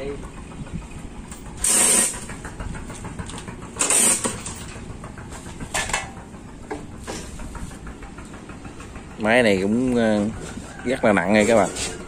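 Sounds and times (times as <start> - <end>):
low steady rumble: 0.0 - 12.0
hoist chain rattling: 1.2 - 6.3.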